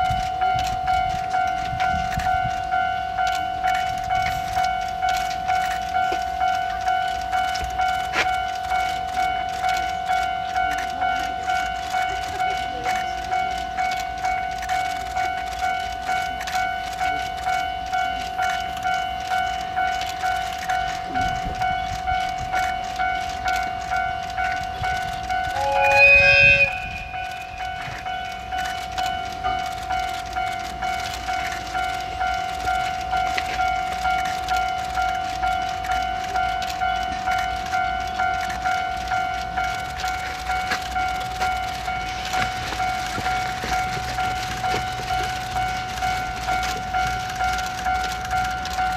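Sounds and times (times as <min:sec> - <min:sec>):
level crossing alarm dinging: 0:00.0 - 0:48.9
train horn: 0:24.6 - 0:28.8.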